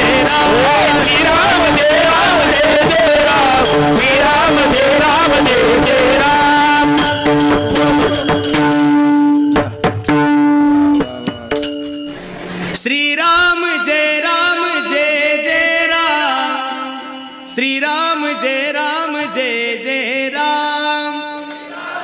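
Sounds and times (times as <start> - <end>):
man singing: 0.0 - 8.4, 12.7 - 21.7
drum strikes: 0.0 - 12.8
hand cymbal strikes: 0.0 - 12.8
held drone note: 0.0 - 12.8.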